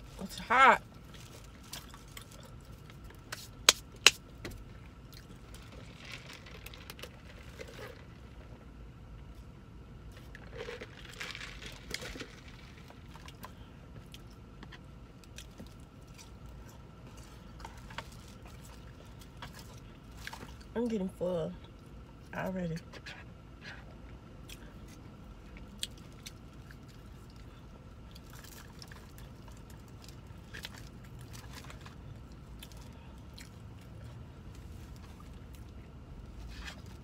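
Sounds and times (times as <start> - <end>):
person chewing: 5.0 - 5.8, 24.4 - 35.9.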